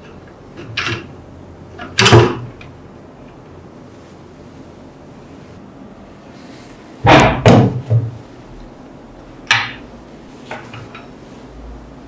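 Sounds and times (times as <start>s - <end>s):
objects thudding on wooden bench: 7.0s - 8.2s.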